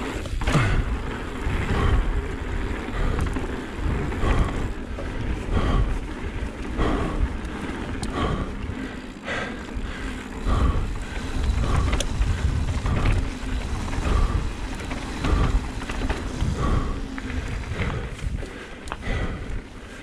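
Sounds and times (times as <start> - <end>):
wind buffeting microphone: 0.0 - 19.8
bike clicks and knocks: 0.0 - 20.0
tyres rumbling on dirt: 0.0 - 20.0.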